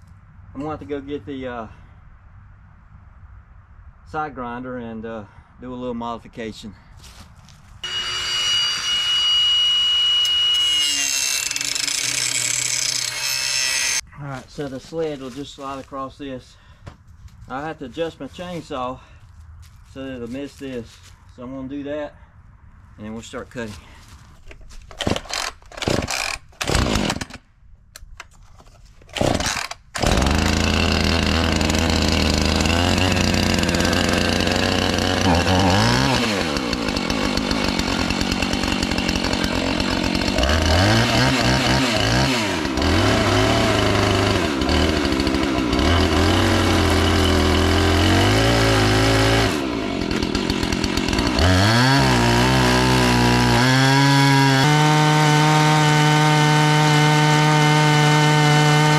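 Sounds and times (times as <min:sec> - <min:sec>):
chainsaw cutting log: 0:07.8 - 0:14.0, 0:24.9 - 0:27.4, 0:29.0 - 0:58.9.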